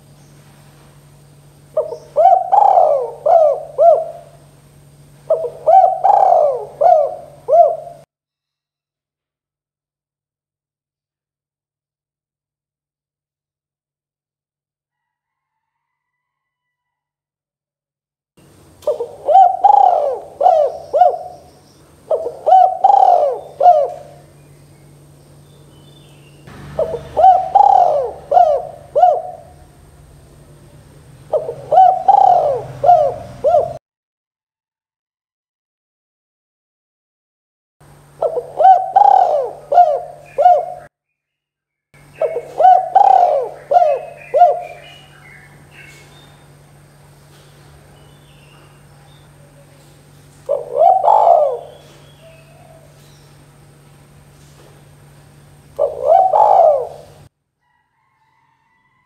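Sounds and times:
dove cooing: 0:01.6 - 0:08.1, 0:18.8 - 0:24.4, 0:26.6 - 0:33.8, 0:38.2 - 0:40.9, 0:42.1 - 0:46.6, 0:49.2 - 0:53.1, 0:55.6 - 0:57.3.

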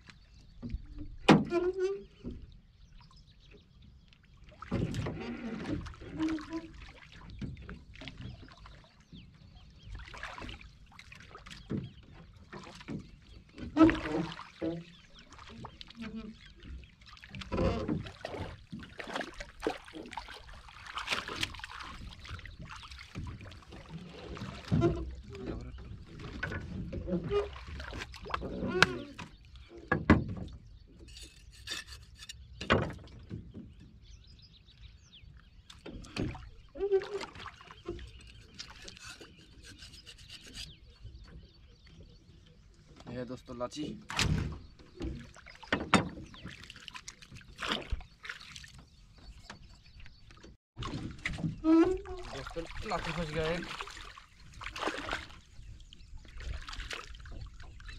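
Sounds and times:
water splashes: 0:04.1 - 0:33.3, 0:35.7 - 0:40.6, 0:43.0 - 0:57.9.

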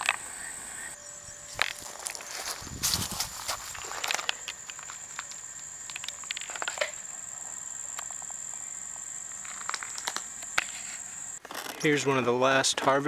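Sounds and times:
insects trilling: 0:00.0 - 0:11.4
footsteps crunching on mulch: 0:01.5 - 0:05.3.

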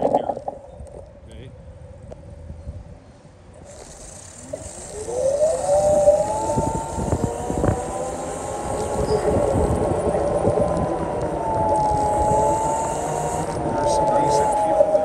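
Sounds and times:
low traffic rumble: 0:00.0 - 0:15.0
emergency siren wailing: 0:05.0 - 0:15.0.

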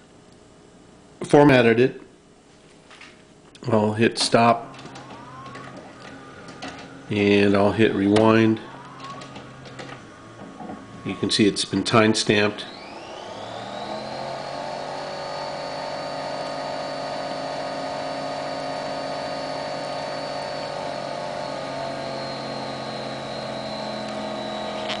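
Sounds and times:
tape recorder rewinding whir: 0:04.2 - 0:25.0.

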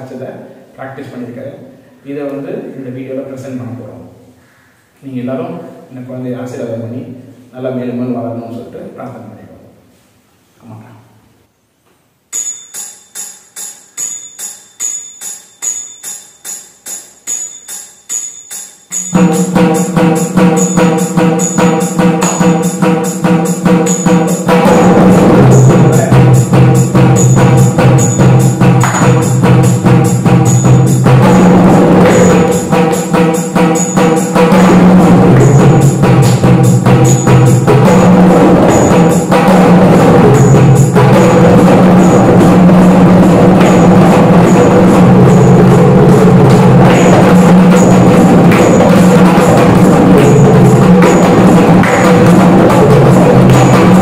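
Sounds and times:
drum strokes: 0:12.4 - 0:54.0.

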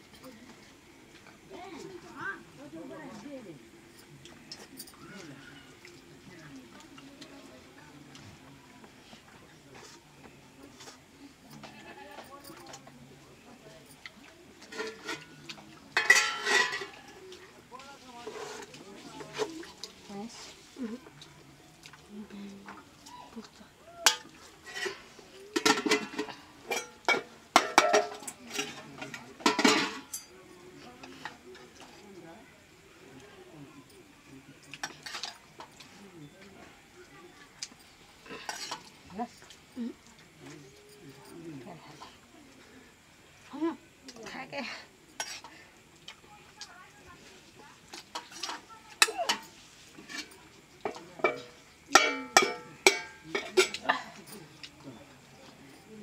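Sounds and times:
steel dishes clinking: 0:14.7 - 0:17.1, 0:24.1 - 0:30.4, 0:38.3 - 0:38.9, 0:48.1 - 0:54.4.

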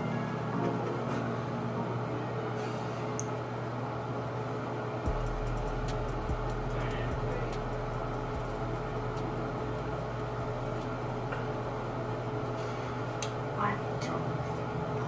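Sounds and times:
low hum: 0:00.0 - 0:15.0
constant mid-pitched tone: 0:05.0 - 0:12.4.

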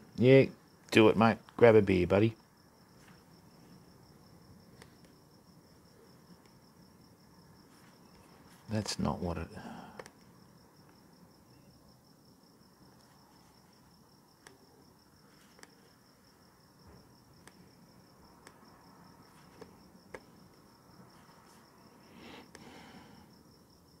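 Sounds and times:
cricket chirping: 0:00.0 - 0:24.0
laptop keyboard taps: 0:19.6 - 0:20.3.

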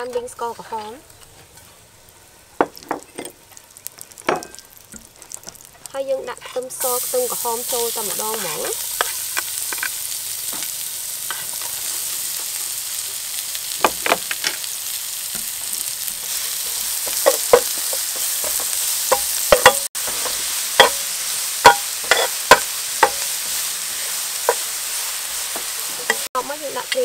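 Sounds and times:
food sizzling in a frying pan: 0:00.0 - 0:27.0
metal ladle scraping a pan: 0:06.4 - 0:10.1, 0:16.2 - 0:26.3.

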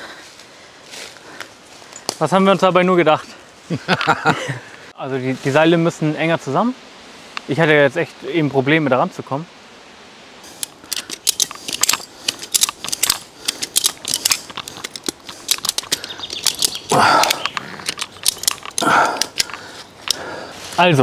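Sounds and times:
metallic harness gear clicking: 0:10.5 - 0:20.2.

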